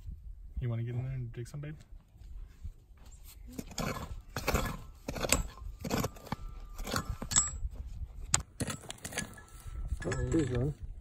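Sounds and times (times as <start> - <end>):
hand cultivator scraping stony soil: 3.2 - 10.8.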